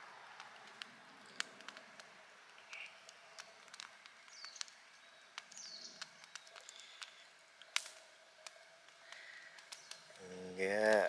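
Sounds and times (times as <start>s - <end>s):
campfire crackling and popping: 0.0s - 11.0s
bird chirping: 2.6s - 7.8s.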